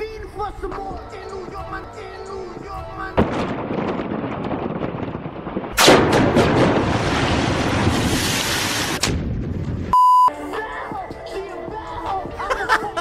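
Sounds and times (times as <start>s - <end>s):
building collapse rumble: 2.8s - 10.0s
demolition charges blasting: 3.2s - 9.9s
loud steady beep: 9.9s - 10.3s.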